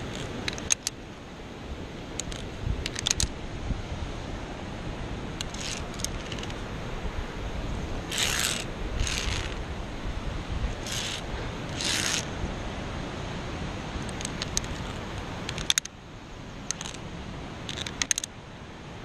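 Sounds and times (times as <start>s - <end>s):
carabiners clinking on steel cable: 0.0s - 0.9s, 2.2s - 3.3s, 5.4s - 6.6s, 8.1s - 9.6s, 10.8s - 12.3s, 14.0s - 15.9s, 16.6s - 17.0s, 17.7s - 18.3s
steady low rumble: 0.0s - 17.7s.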